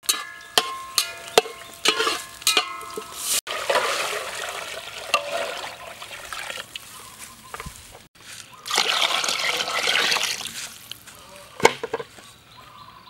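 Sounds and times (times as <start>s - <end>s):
fat frying: 0.0s - 11.0s
water pouring into a metal pot: 2.8s - 6.8s, 8.6s - 10.5s.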